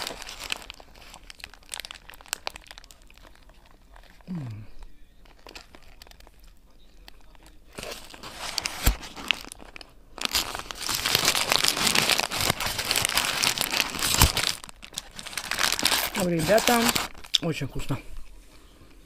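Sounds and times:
paper wrapper crinkling: 0.0s - 17.9s
quiet chewing: 0.8s - 8.0s.

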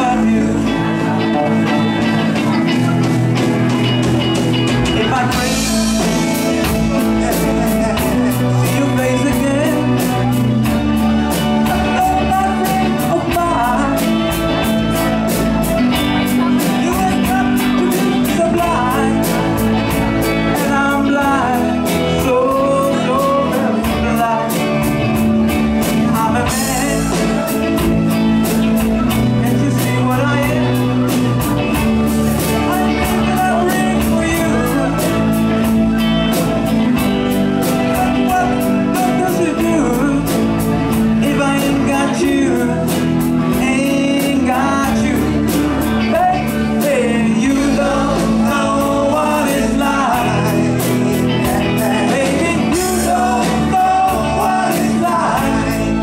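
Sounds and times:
bass guitar: 0.0s - 56.0s
drum kit steady beat: 0.0s - 56.0s
electric guitar: 0.0s - 56.0s
keyboards: 0.0s - 56.0s
person singing lead vocal: 0.0s - 56.0s.

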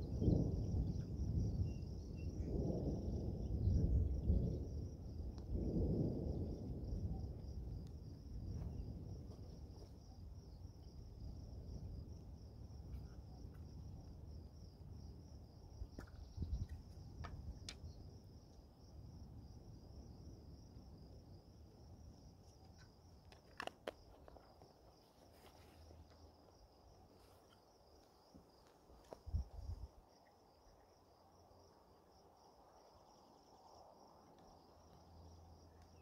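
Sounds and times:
thunder rumbling: 0.0s - 9.7s
high-pitched insect trill: 0.0s - 21.4s.

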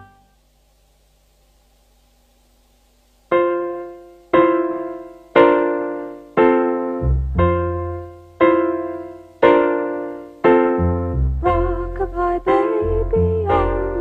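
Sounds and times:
piano chords: 0.0s - 0.3s, 3.3s - 14.0s
low piano bass notes: 3.4s - 14.0s.

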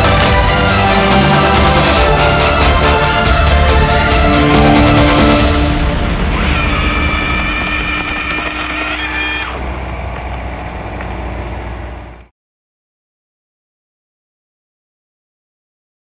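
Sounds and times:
machine engine running: 4.6s - 12.3s.

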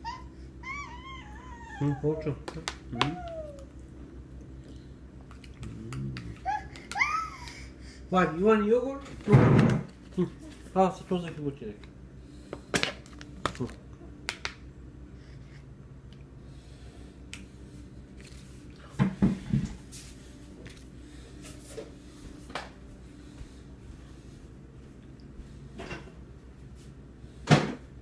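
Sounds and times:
faint low hum: 0.0s - 28.0s.

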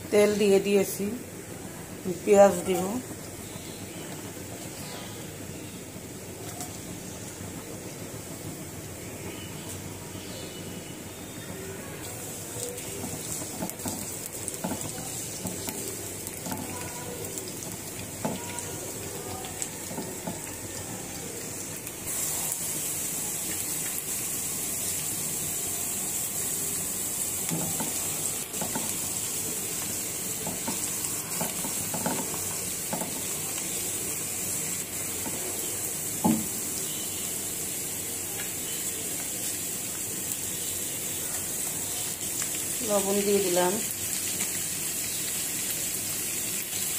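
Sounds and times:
onions sizzling in hot oil: 0.0s - 46.9s
spatula scraping and tapping pan: 13.0s - 16.8s, 27.5s - 29.0s, 30.4s - 33.3s.

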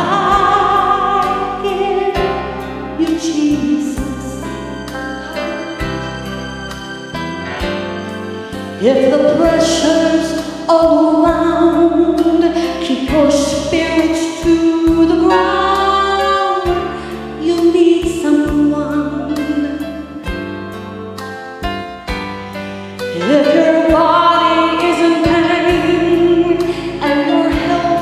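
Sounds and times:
woman singing gospel song: 0.0s - 4.6s, 8.8s - 20.0s, 23.1s - 28.0s
instrumental accompaniment: 0.0s - 28.0s.

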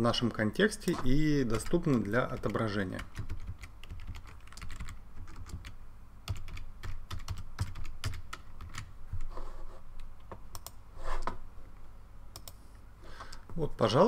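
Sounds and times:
computer keyboard typing: 0.9s - 9.3s, 10.5s - 10.8s.

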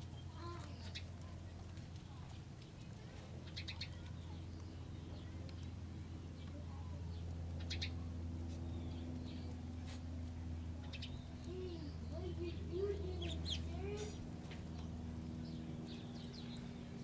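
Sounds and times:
steady low hum: 0.0s - 17.0s
small bird chirps: 3.4s - 5.8s, 7.1s - 8.0s, 10.8s - 14.2s.

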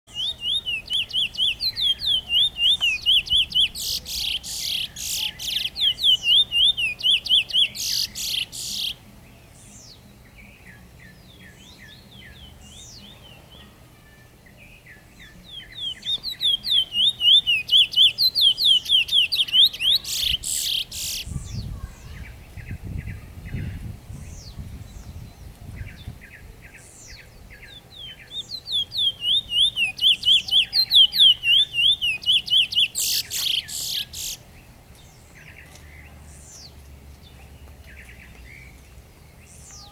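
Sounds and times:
songbird singing whistled notes: 0.1s - 39.9s.

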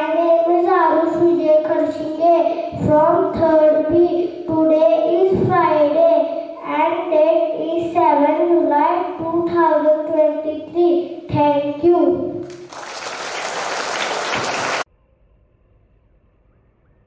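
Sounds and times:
child singing into a microphone: 0.0s - 12.4s
applause: 12.4s - 14.9s.

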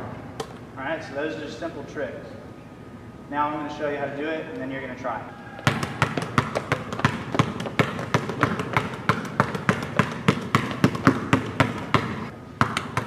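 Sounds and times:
basketball bouncing on wooden floor: 5.6s - 13.0s.

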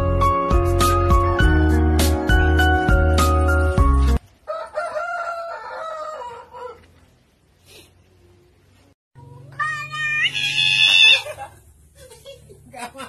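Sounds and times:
background music: 0.0s - 4.2s
rooster crowing: 4.4s - 7.0s.

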